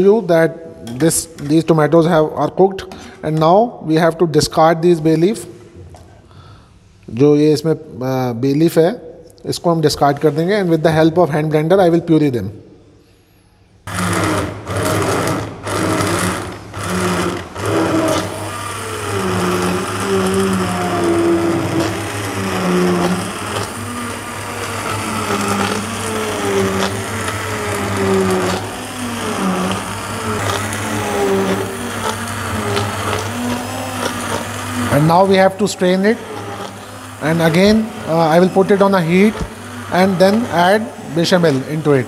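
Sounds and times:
hand blender whirring: 13.9s - 42.0s.

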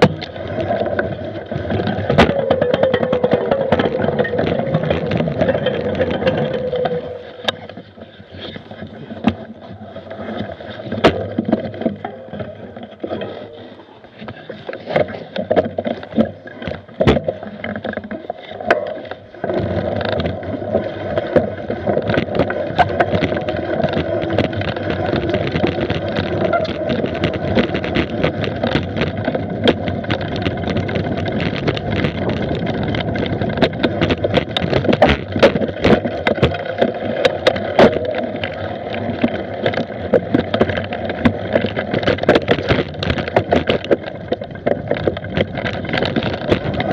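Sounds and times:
bike knocking and rattling: 0.0s - 46.9s
bike tyres rolling over dirt: 0.0s - 46.9s
wind rumble on microphone: 19.4s - 46.9s.

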